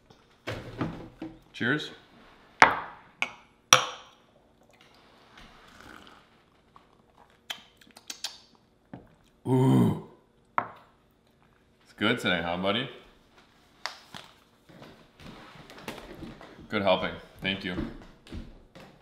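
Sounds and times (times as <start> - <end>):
person sighing ahh: 9.4 - 10.2.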